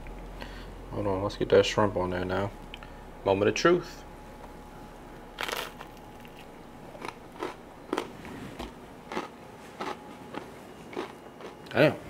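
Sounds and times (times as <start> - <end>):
crunching bite into toast: 5.4 - 8.1
crisp chewing crunches: 5.4 - 8.2, 9.1 - 11.7.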